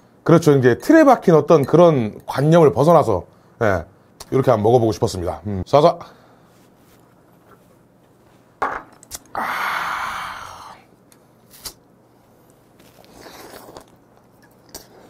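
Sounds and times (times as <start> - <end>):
man exhaling loudly: 9.3 - 10.9.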